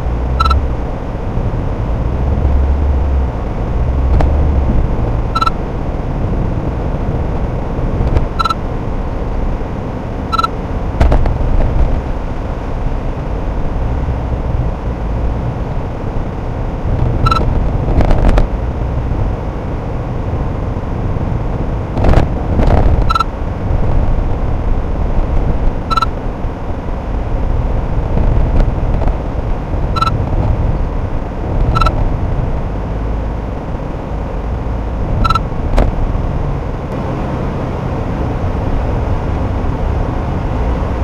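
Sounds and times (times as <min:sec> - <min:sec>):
car engine and road rumble: 0:00.0 - 0:41.0
short high beeps: 0:00.4 - 0:00.6, 0:05.4 - 0:05.6, 0:08.4 - 0:08.6, 0:10.3 - 0:10.5, 0:17.2 - 0:17.5, 0:23.1 - 0:23.3, 0:25.9 - 0:26.1, 0:30.0 - 0:30.2, 0:31.7 - 0:32.0, 0:35.2 - 0:35.4.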